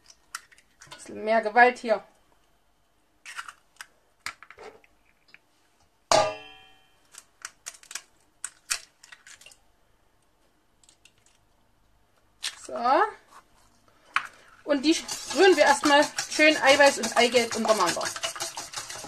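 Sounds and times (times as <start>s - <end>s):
sharp knock ringing metal bowl: 6.1s - 6.9s
eggshells cracking: 7.1s - 9.6s.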